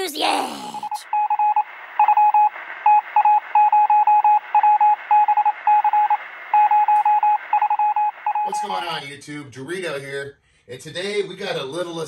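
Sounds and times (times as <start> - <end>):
rapid electronic beeps: 0.7 - 8.8.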